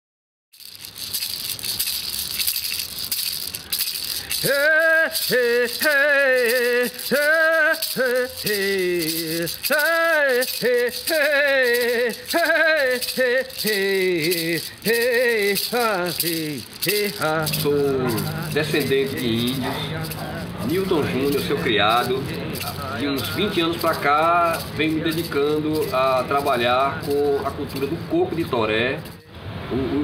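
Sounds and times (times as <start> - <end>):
hand rattle shaken: 0.6 - 29.3
person chanting: 3.7 - 28.3.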